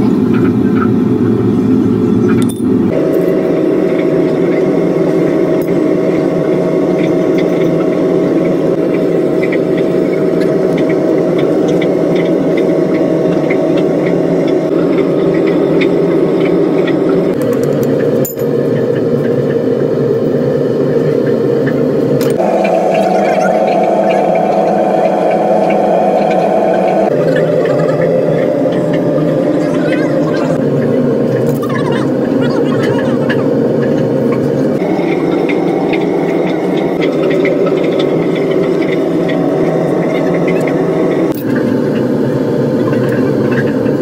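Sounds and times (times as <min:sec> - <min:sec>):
loud low hum: 0:00.0 - 0:44.0.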